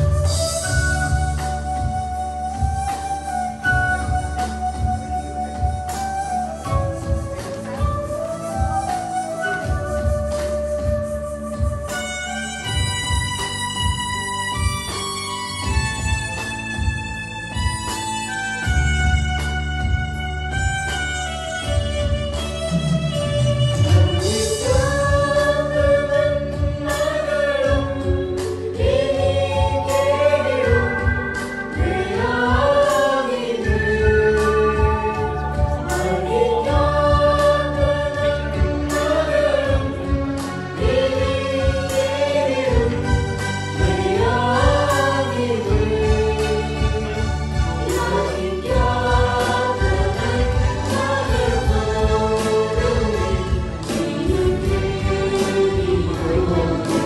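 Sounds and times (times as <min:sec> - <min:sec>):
small choir singing a hymn: 0:24.2 - 0:57.0.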